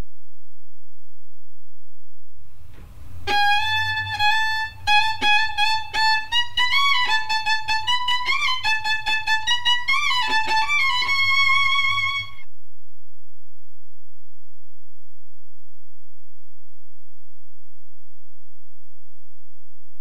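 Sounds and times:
solo violin melody: 3.1s - 12.4s.

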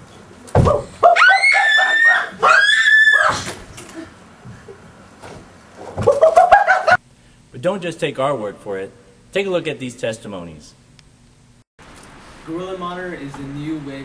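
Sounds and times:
person screaming: 1.0s - 3.5s.

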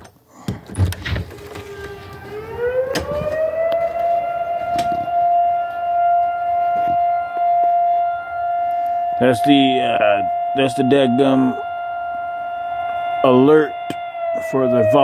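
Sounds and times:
siren winding up: 1.2s - 15.0s.

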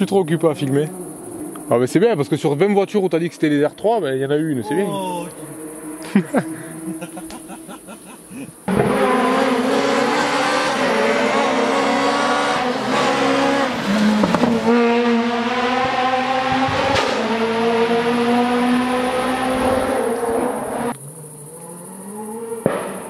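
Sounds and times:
rally car engine revving: 5.1s - 23.0s
sharp bangs from car: 14.1s - 14.9s, 16.7s - 17.3s, 22.6s - 23.0s.

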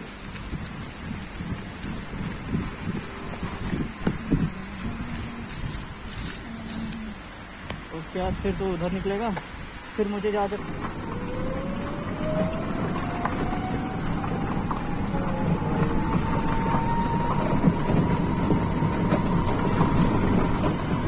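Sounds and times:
road and wind rumble: 0.0s - 21.0s
vehicle rattles: 0.0s - 21.0s
engine whine rising in pitch: 10.2s - 21.0s.

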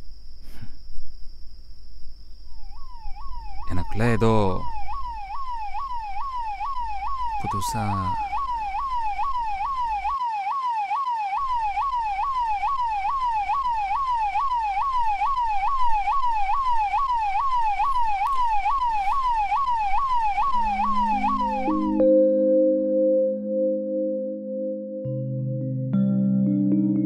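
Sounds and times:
electronic siren yelping: 2.5s - 24.5s
low sustained music tones: 18.1s - 27.0s.

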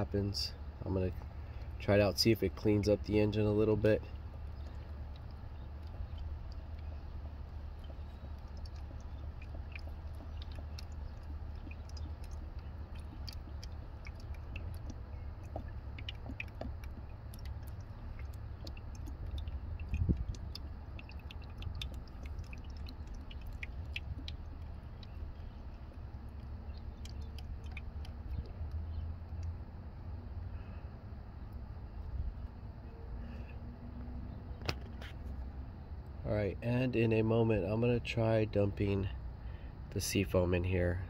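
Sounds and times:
steady low hum: 0.0s - 41.0s
fluid trickling through funnel: 0.6s - 29.9s.

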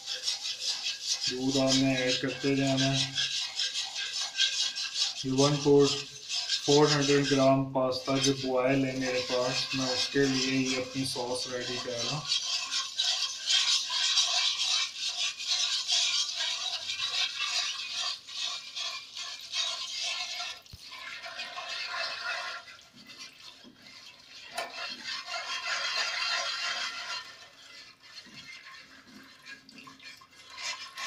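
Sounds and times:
wire whisk beating in pot: 0.0s - 31.0s.

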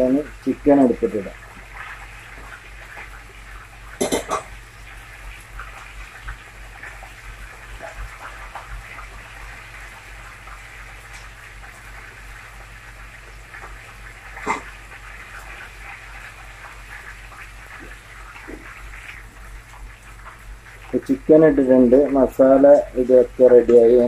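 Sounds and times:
stock bubbling in a pot: 0.0s - 24.0s.

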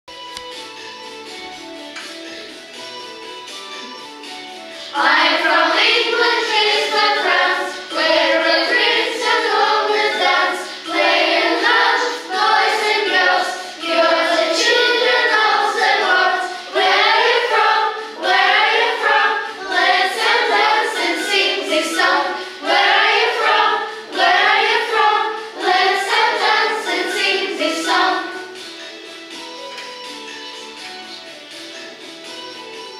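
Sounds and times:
children singing: 4.7s - 28.9s.

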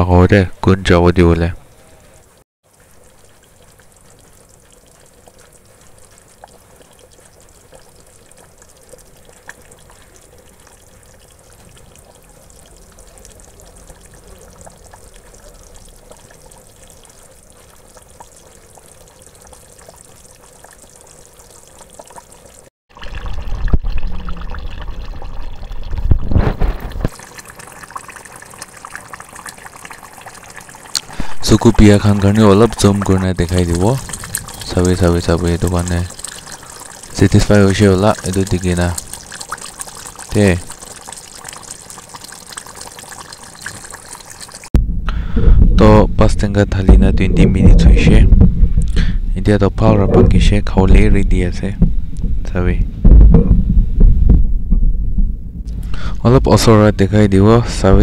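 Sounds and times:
curry bubbling in a pot: 1.7s - 44.7s
deep rumble: 44.8s - 56.6s.

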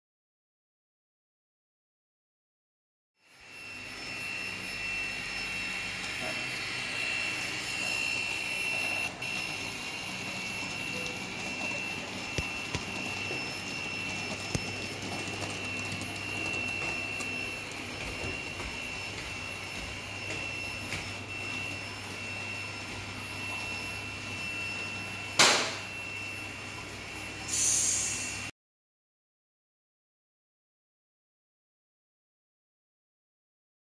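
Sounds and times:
sharp knock: 25.4s - 25.8s.

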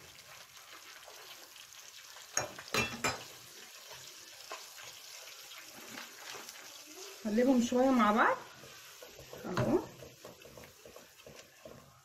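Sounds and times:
oil sizzling in a pot: 0.0s - 12.0s
kitchenware clinking: 2.3s - 3.3s.

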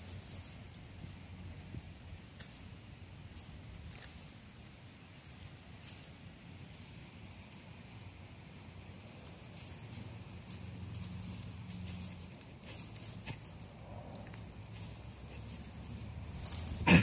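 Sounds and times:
dry leaves and twigs crackling: 0.0s - 17.0s
low rumble: 13.6s - 16.8s.

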